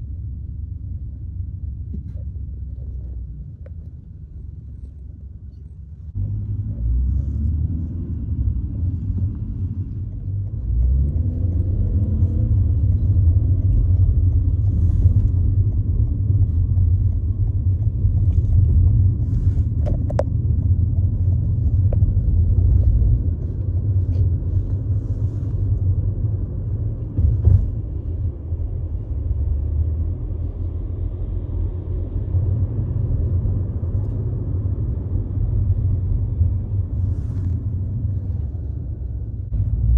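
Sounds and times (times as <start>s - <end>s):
car road and engine rumble: 0.0s - 39.9s
thump: 27.2s - 27.8s.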